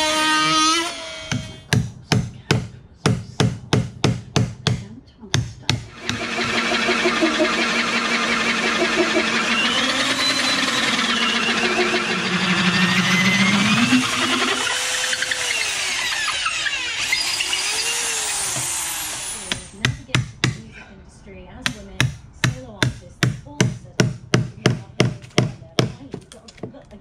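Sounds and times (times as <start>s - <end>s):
electric drill cutting wood: 0.0s - 1.6s, 5.9s - 19.7s.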